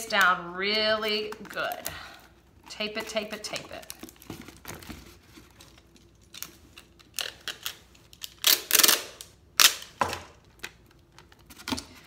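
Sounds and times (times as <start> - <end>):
packing tape peeling: 3.8 - 11.8
tape torn on cutter: 6.4 - 10.0.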